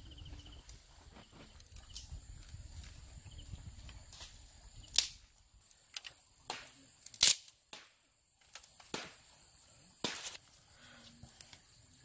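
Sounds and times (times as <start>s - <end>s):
bamboo sticks snapping and knocking: 3.8s - 9.2s, 10.0s - 10.6s.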